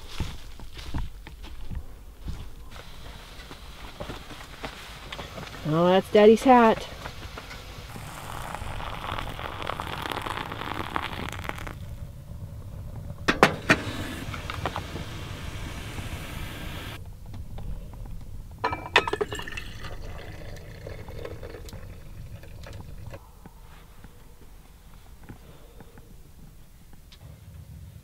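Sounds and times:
kettle and dripper clinking: 0:06.6 - 0:11.8, 0:18.6 - 0:23.2
hot water pouring from kettle: 0:07.9 - 0:11.9, 0:19.0 - 0:23.2.

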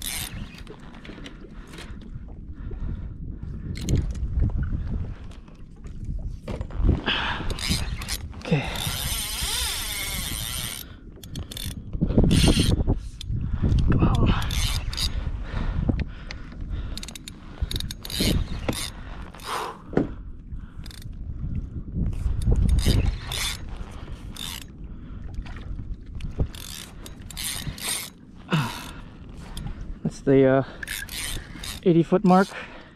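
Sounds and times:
fishing reel clicking and buzzing: 0:00.0 - 0:01.0, 0:07.4 - 0:15.2, 0:16.9 - 0:19.6, 0:20.8 - 0:21.1, 0:22.2 - 0:24.7, 0:26.3 - 0:29.0, 0:30.7 - 0:32.5.

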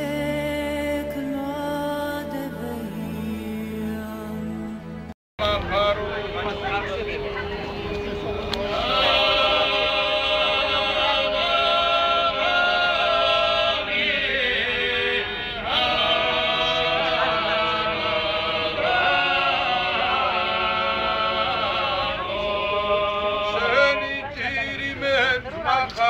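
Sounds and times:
men singing unaccompanied: 0:08.6 - 0:26.0.

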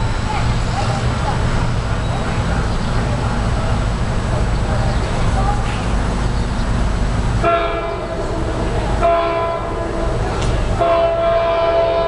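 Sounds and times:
locomotive air horn blasts: 0:07.4 - 0:10.2, 0:10.8 - 0:12.0.

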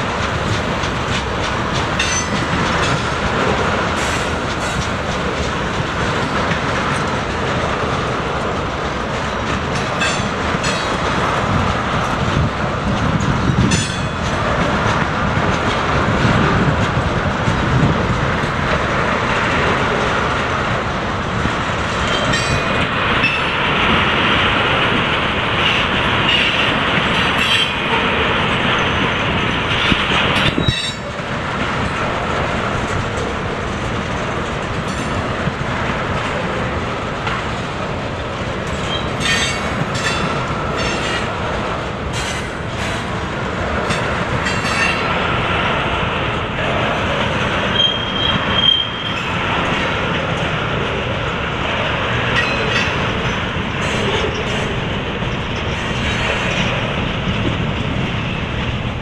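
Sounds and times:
train wheels clacking on rail joints: 0:00.0 - 0:59.0
high wheel squeal: 0:38.8 - 0:41.3, 0:47.7 - 0:49.4.

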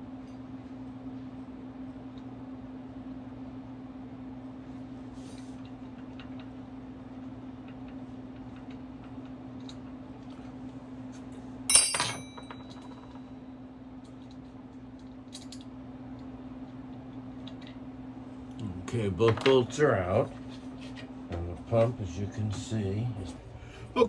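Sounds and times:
steady low hum: 0:00.0 - 0:24.0
loud metallic clink: 0:11.7 - 0:13.0.

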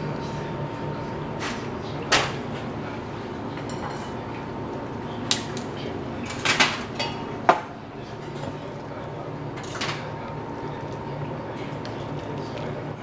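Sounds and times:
steady low hum: 0:00.0 - 0:13.0
dishes and utensils clinking: 0:03.5 - 0:04.4, 0:06.2 - 0:08.6.

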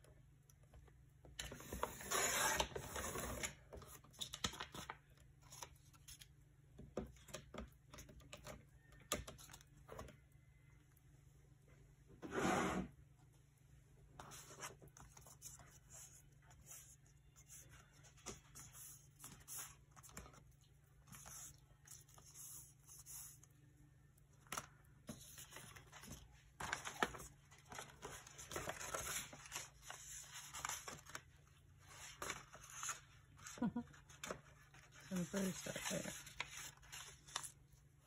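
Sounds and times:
paper rustling and tearing: 0:24.5 - 0:37.7.

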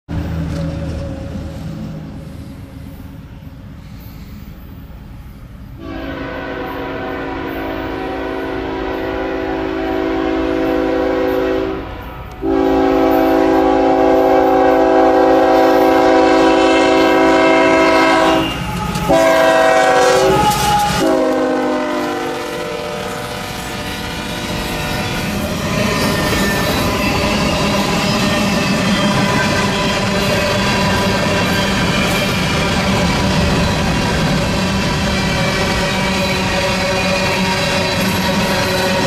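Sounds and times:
locomotive air horn blasts: 0:05.8 - 0:25.1.

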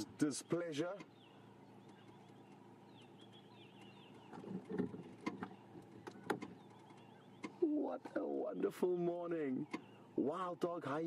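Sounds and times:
vehicle engine idling: 0:00.0 - 0:11.0.

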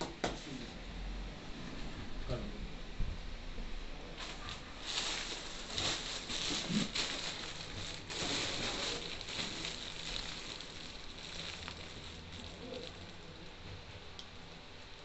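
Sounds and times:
paper and plastic rustling: 0:04.2 - 0:13.7.

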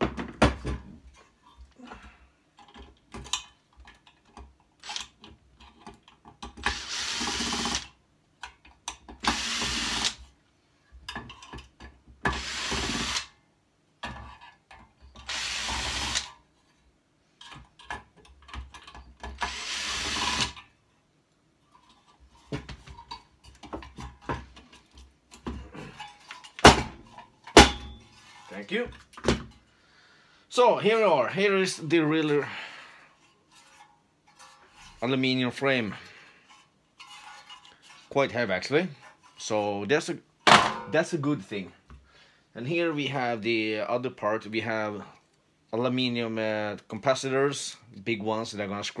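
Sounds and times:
cordless drill motor: 0:06.7 - 0:07.9, 0:09.2 - 0:10.2, 0:12.3 - 0:13.3, 0:15.2 - 0:16.3, 0:19.4 - 0:20.6
handling metal parts: 0:21.7 - 0:29.7.

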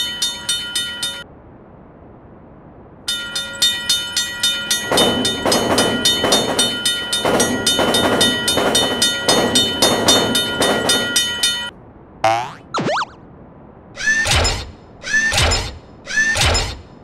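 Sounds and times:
level crossing bell ringing: 0:00.0 - 0:01.2, 0:03.1 - 0:11.7
passing train rattle: 0:00.0 - 0:01.3, 0:03.1 - 0:11.8.

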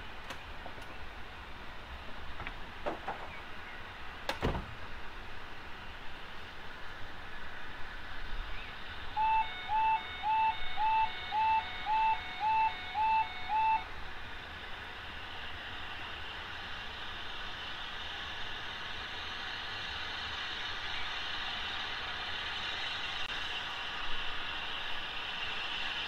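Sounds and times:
electronic warning beeps: 0:09.2 - 0:13.9.

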